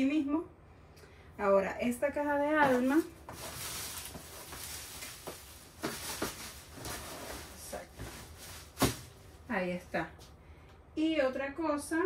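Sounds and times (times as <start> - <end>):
plastic wrap rustling: 2.6 - 9.7.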